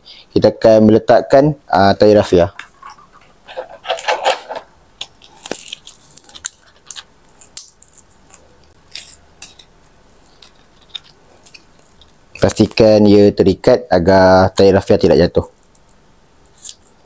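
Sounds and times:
plastic string crinkling: 2.6s - 13.0s.

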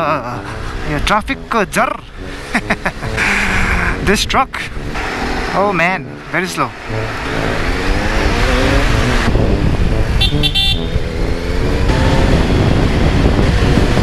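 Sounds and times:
motorcycle engine revving: 0.0s - 14.0s
vehicle horn: 6.8s - 11.2s
wind on microphone: 7.0s - 14.0s.

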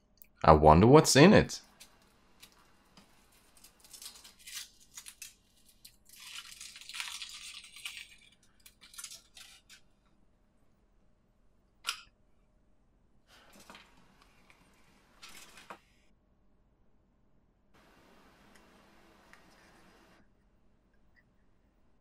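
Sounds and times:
foil wrapper crinkling and tearing: 1.9s - 9.8s.

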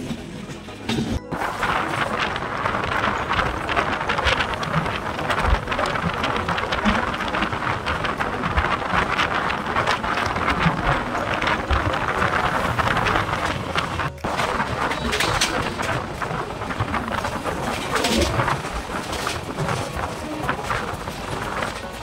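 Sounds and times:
rush of wind: 0.0s - 22.0s
train wheels rumbling and knocking: 0.0s - 22.0s.

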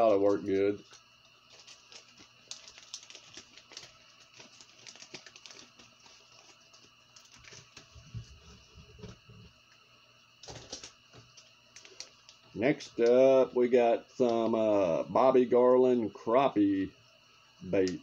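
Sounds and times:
plastic packaging crinkling: 0.0s - 9.1s, 10.4s - 13.1s.

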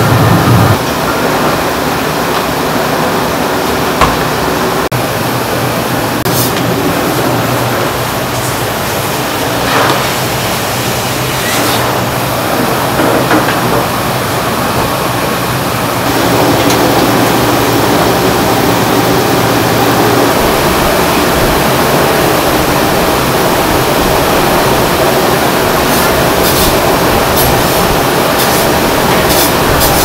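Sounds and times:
low hum: 0.0s - 1.0s
ventilation fans rushing: 0.0s - 30.0s.

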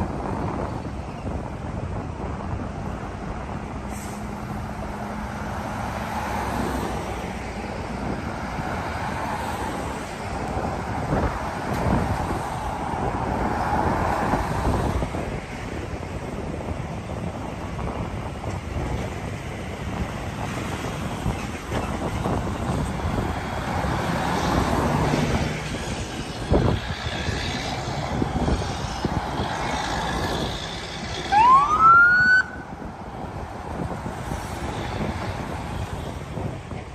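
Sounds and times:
cars and trucks driving past: 0.0s - 36.9s
siren whoop: 31.3s - 32.7s.

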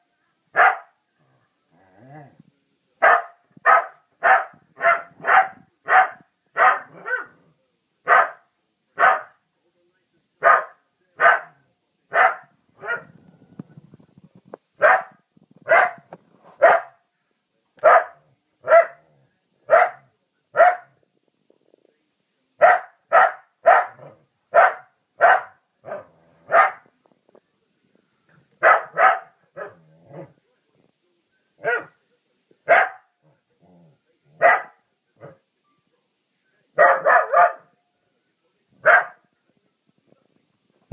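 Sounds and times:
dog barking: 0.5s - 1.0s, 3.0s - 7.4s, 8.1s - 9.4s, 10.4s - 13.1s, 14.8s - 17.0s, 17.8s - 19.0s, 19.7s - 21.0s, 22.6s - 26.9s, 28.6s - 29.8s, 31.6s - 32.0s, 32.7s - 33.1s, 34.4s - 35.4s, 36.8s - 37.7s, 38.8s - 39.2s.

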